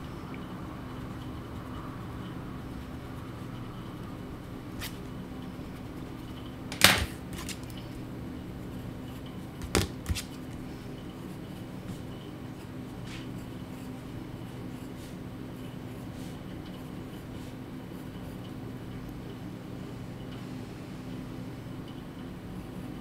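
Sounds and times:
steady low hum: 0:00.0 - 0:23.0
sharp knocks on desk: 0:06.7 - 0:07.6, 0:09.6 - 0:10.3.

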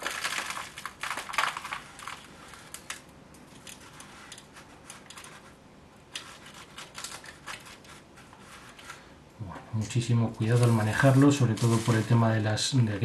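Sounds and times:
gritty soil crunching by hand: 0:10.4 - 0:12.6.

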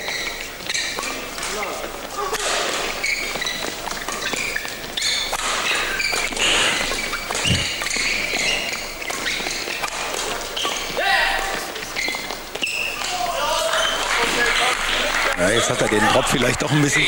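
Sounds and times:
shoes squeaking on court: 0:00.0 - 0:14.1
crowd murmur: 0:06.4 - 0:07.8.

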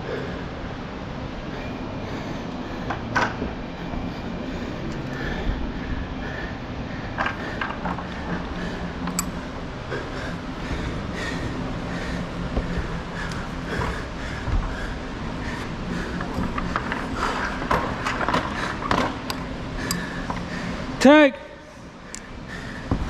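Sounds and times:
background rumble: 0:00.0 - 0:21.0.

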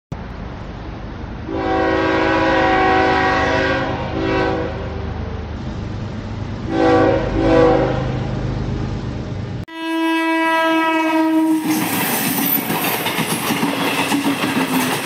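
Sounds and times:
train horn blasts: 0:01.5 - 0:05.4, 0:06.7 - 0:08.3, 0:09.7 - 0:11.7.

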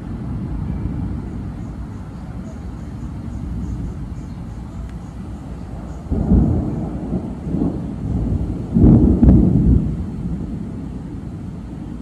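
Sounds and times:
thunder rumbling and clapping: 0:06.0 - 0:12.0.

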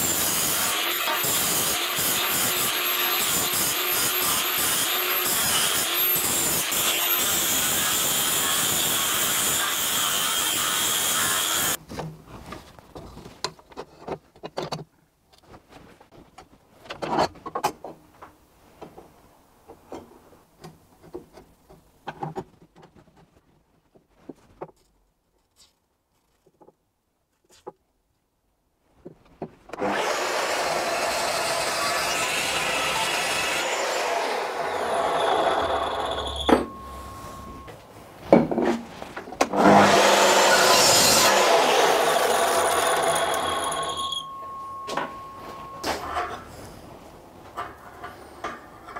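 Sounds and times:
power tool cutting steel: 0:00.0 - 0:11.8, 0:29.8 - 0:37.1, 0:39.5 - 0:44.4.

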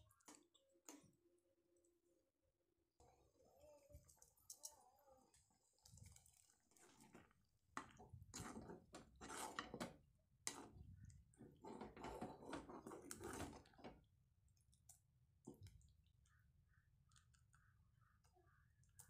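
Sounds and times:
gravy stirred in metal pan: 0:05.2 - 0:14.1.

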